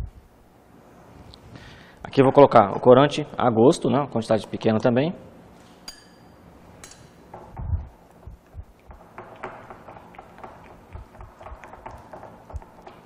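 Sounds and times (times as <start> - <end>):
metal spoon clinking on glass: 5.8 - 7.2
spatula stirring in glass bowl: 8.7 - 13.0.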